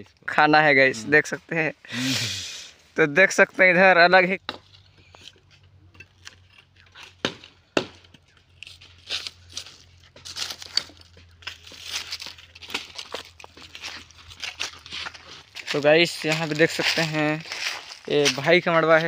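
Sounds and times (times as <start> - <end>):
axe chopping branch: 4.4 - 16.6
bark tearing: 4.6 - 16.6
footsteps on dry leaves: 8.3 - 19.0.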